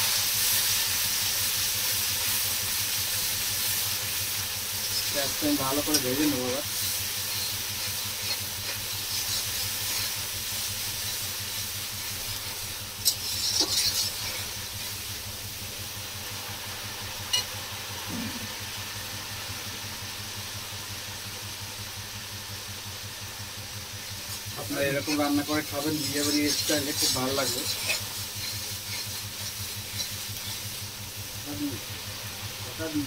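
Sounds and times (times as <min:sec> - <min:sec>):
paste sizzling in oil: 0:00.0 - 0:33.0
steady low hum: 0:00.0 - 0:33.0
metal spatula scraping pan: 0:04.8 - 0:14.8, 0:24.1 - 0:30.8.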